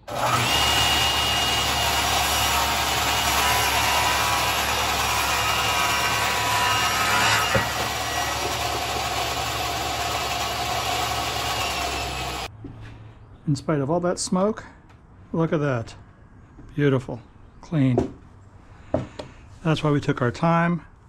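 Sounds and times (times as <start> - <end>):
table saw cutting wood: 0.0 - 12.5.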